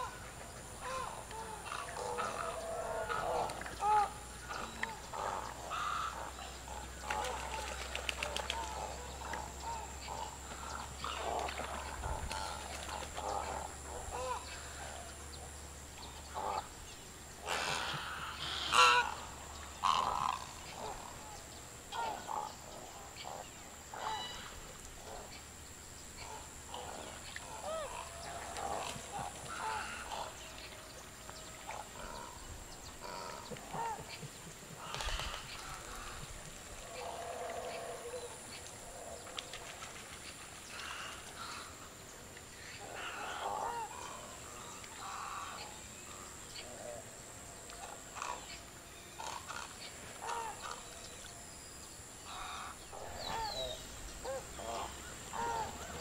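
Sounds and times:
wading birds calling: 0.0s - 51.2s, 52.1s - 56.0s
birds honking calls: 17.4s - 21.3s.

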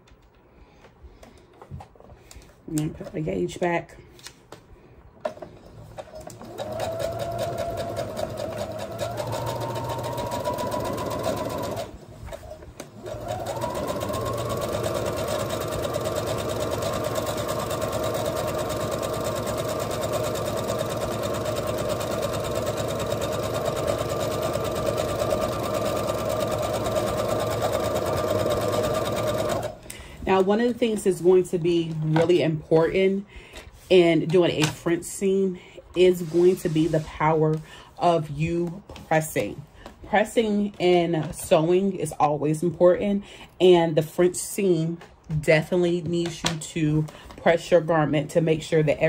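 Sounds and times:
sewing machine stitching: 5.9s - 29.8s.

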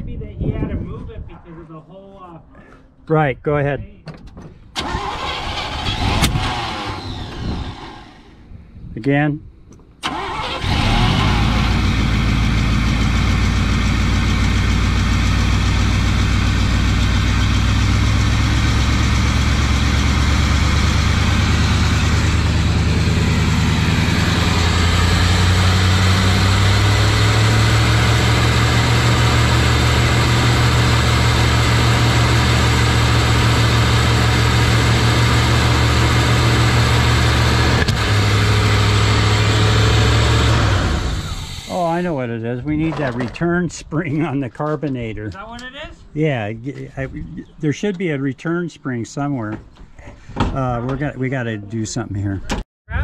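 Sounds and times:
truck engine running: 4.8s - 8.5s, 10.0s - 42.2s.

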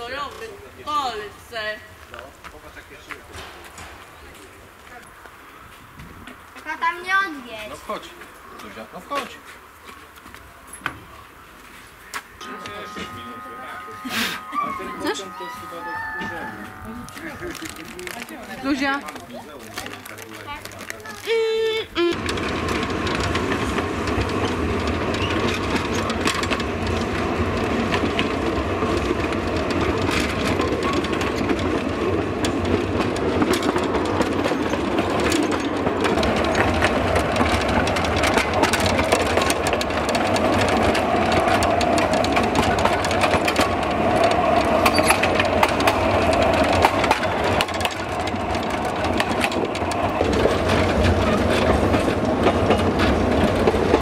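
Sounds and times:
train wheels rumbling on rails: 0.0s - 54.0s
steady higher tone: 12.4s - 19.3s
wagons rattling and clicking: 12.4s - 54.0s.

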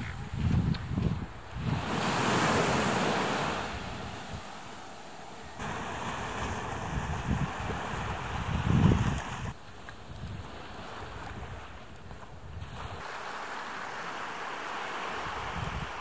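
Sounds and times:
wind buffeting microphone: 0.0s - 13.1s, 15.1s - 16.0s
small waves breaking on beach: 1.3s - 16.0s.

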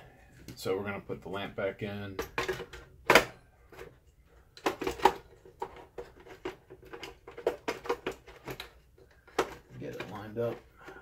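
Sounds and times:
plastic clicks and knocks: 4.6s - 11.0s.

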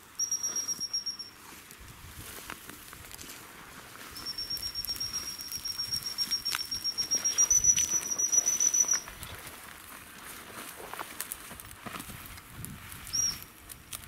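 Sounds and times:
footsteps rustling through dry grass: 0.0s - 14.0s
high-pitched whistle blast: 0.2s - 1.4s, 4.2s - 9.1s.

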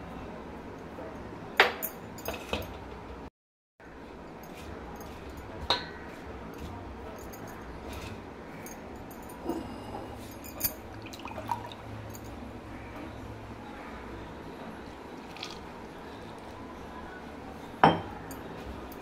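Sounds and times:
dishes clinking: 17.8s - 19.0s.

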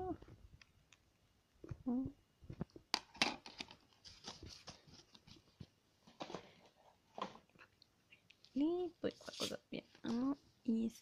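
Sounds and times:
cd packaging clicks and rustles: 2.6s - 6.6s.

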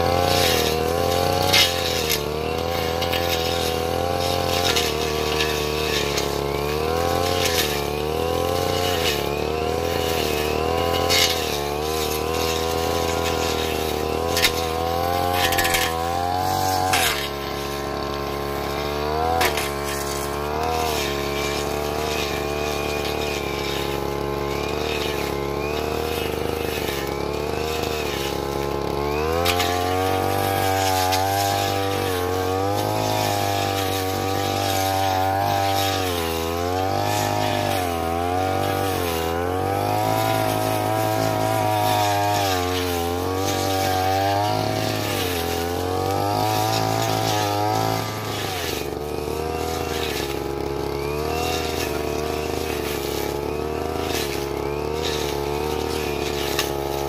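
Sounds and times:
brush cutter engine revving: 0.0s - 57.0s.

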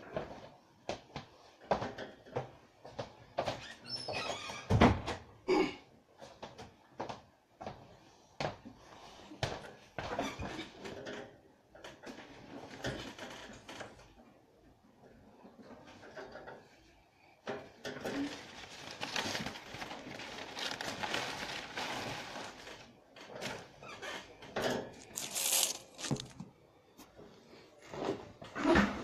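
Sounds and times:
phone handling rubbing and rustling: 25.0s - 26.4s.

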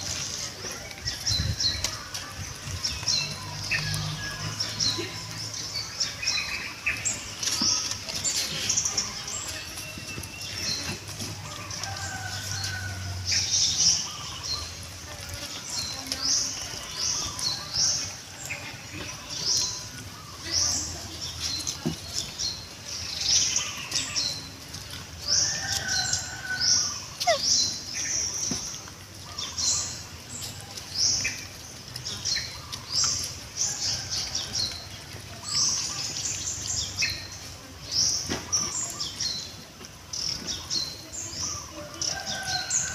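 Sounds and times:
birds chirping: 0.0s - 42.9s.

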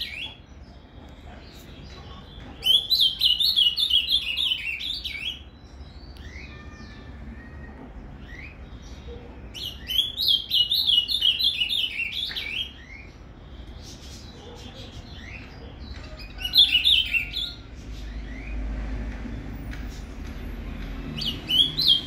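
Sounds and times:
faint bird calls: 6.1s - 9.8s.

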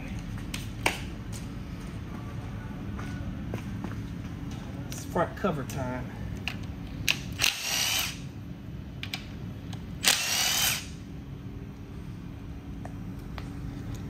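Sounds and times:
cordless power tool whine: 7.4s - 8.2s, 10.0s - 10.9s.

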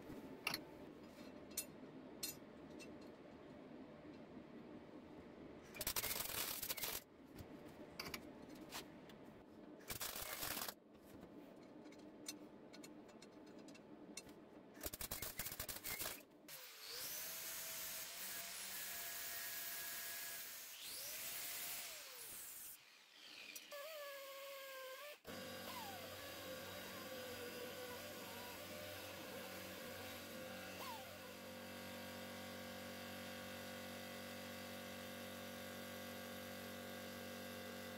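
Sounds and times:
welding arc crackle: 5.8s - 7.0s, 9.9s - 10.8s.

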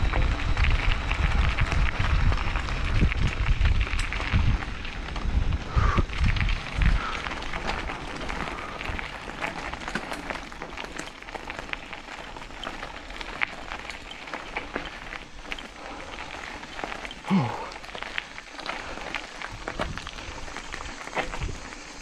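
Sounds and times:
bike tyre rushing on dirt: 0.0s - 22.0s
small clicks and rattles: 6.1s - 22.0s.

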